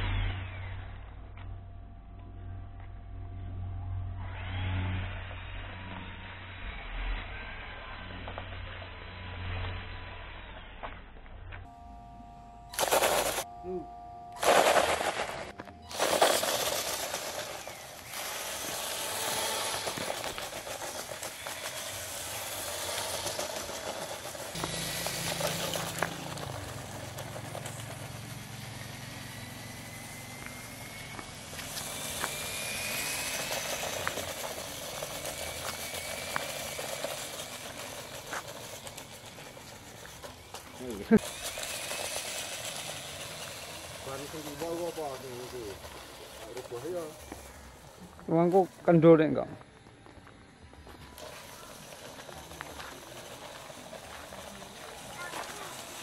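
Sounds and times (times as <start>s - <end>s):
toy truck motor whining: 0.0s - 1.3s, 3.8s - 11.2s, 12.6s - 49.4s, 50.8s - 56.0s
wheels spinning throwing grit: 12.7s - 13.5s, 14.3s - 56.0s
tyres crunching loose stones: 14.4s - 56.0s.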